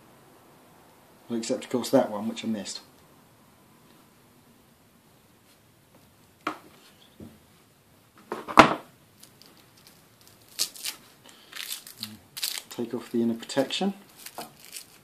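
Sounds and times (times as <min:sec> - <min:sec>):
cable rustling and ticking: 0:09.2 - 0:15.0.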